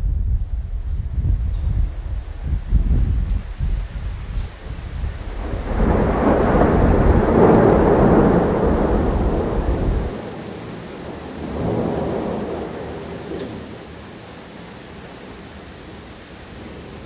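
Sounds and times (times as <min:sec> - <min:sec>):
rolling thunder: 0:00.0 - 0:13.8.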